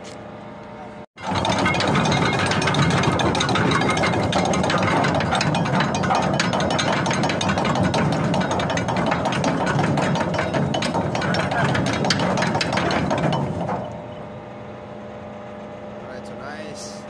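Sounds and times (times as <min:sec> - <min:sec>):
mechanical hum: 0:00.0 - 0:17.0
anchor chain rattling: 0:01.2 - 0:14.2.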